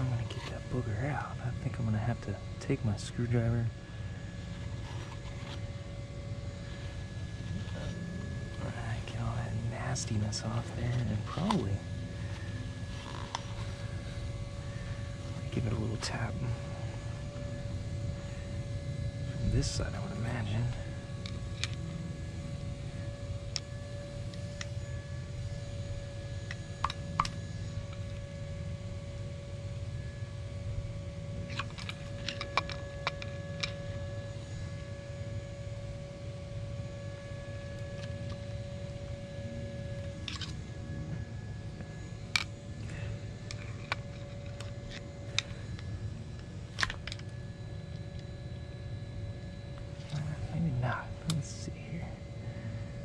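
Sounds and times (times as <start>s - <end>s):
faint steady tone: 0.0s - 53.0s
steady low rumble: 0.0s - 53.0s.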